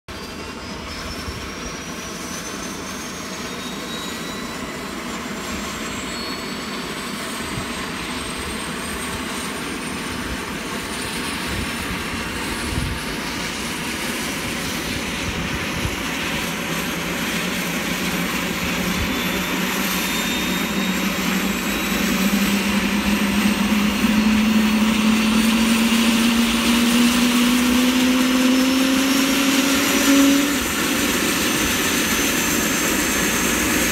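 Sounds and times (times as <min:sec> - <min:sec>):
helicopter turbine whine rising: 0:00.1 - 0:33.9
helicopter rotor spinning up: 0:01.8 - 0:33.9
lower rising tone: 0:14.8 - 0:33.1.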